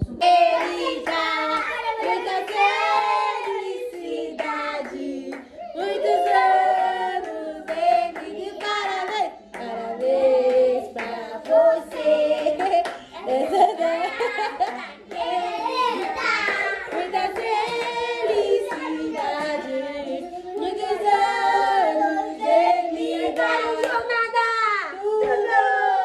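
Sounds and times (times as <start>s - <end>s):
women and children singing: 0.0s - 26.0s
hand clapping: 14.6s - 19.8s.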